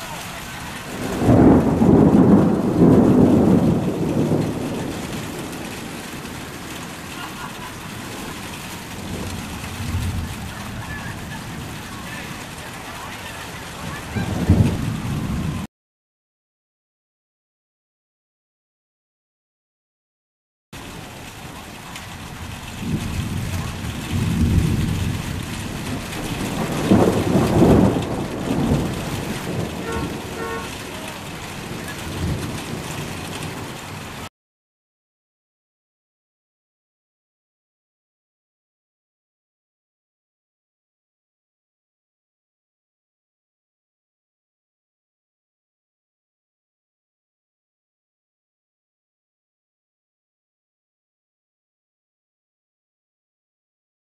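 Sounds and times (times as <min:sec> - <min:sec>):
rain hissing: 0:00.0 - 0:15.7, 0:20.8 - 0:34.3
rolling thunder rumble: 0:00.0 - 0:15.7, 0:20.8 - 0:34.3.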